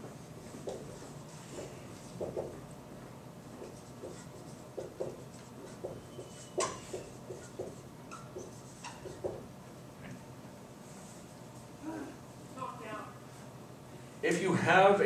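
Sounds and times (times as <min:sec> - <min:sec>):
marker writing on whiteboard: 0:00.0 - 0:09.5.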